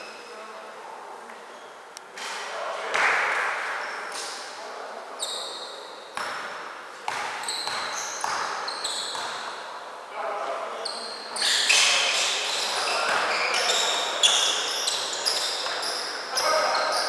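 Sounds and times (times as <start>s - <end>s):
sneakers squeaking on floor: 1.4s - 1.8s, 3.0s - 4.4s, 5.2s - 9.7s, 10.8s - 17.0s
basketball bouncing: 6.2s - 9.4s
players' voices: 10.1s - 17.0s.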